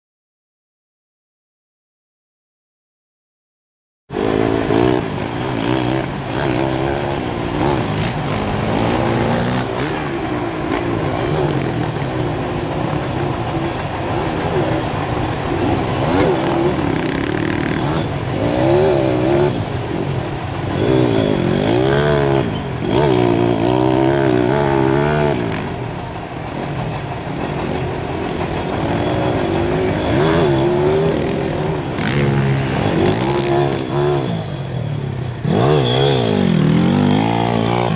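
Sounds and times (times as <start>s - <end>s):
dirt bike engine revving: 4.1s - 12.2s, 15.6s - 25.7s, 28.7s - 37.9s.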